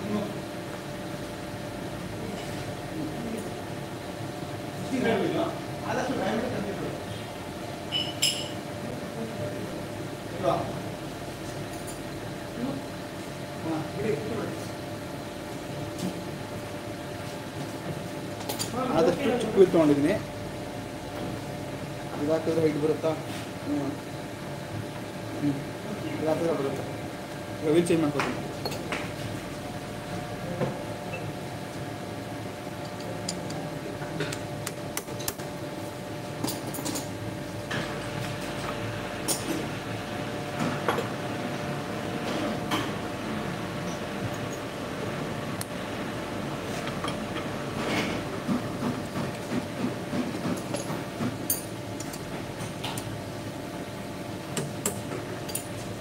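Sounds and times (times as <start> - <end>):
steady machine hum: 0.0 - 56.0.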